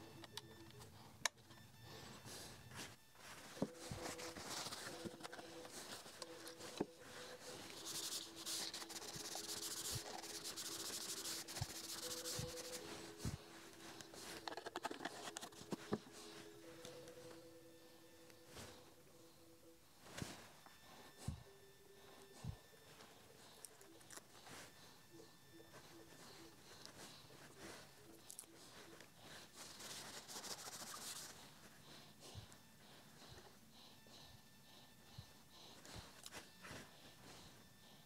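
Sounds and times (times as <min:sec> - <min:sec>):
faint steady hum: 0:00.0 - 0:38.0
hands rubbing cable and hose: 0:02.7 - 0:17.4, 0:25.7 - 0:31.5.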